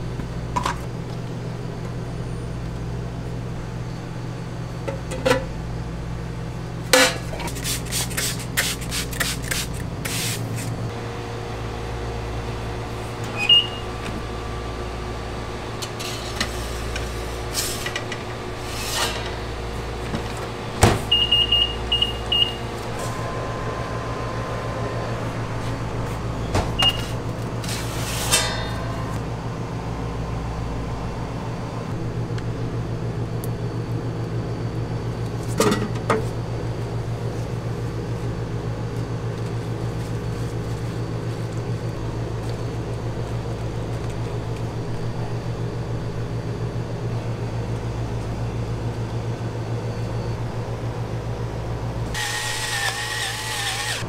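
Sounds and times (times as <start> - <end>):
steady low hum: 0.0 - 54.0
oven door shutting: 17.5 - 29.2.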